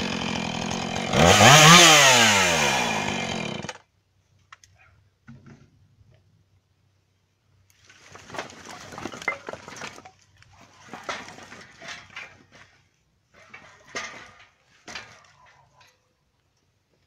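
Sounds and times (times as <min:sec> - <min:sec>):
firewood logs clattering: 0:07.8 - 0:16.0.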